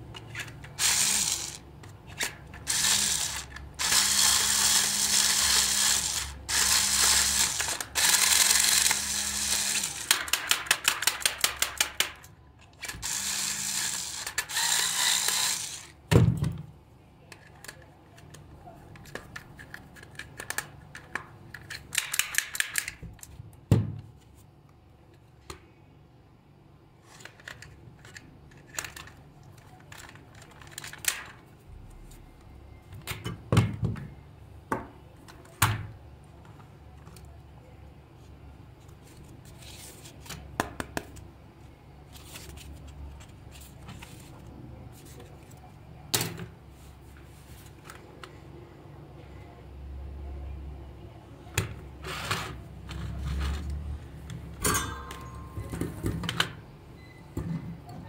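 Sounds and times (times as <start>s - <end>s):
plastic parts clicking and rattling: 17.3s - 23.4s, 27.1s - 31.4s.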